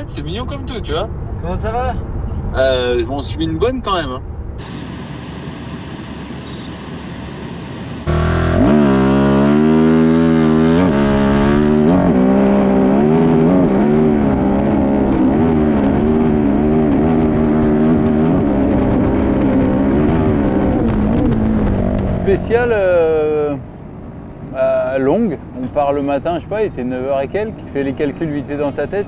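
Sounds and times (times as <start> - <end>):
motorcycle engine revving: 8.0 - 23.2.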